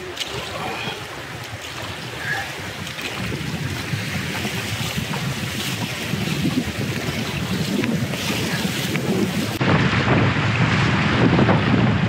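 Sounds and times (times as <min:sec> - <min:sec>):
river water rushing: 0:00.0 - 0:09.6
wind noise on microphone: 0:00.0 - 0:12.0.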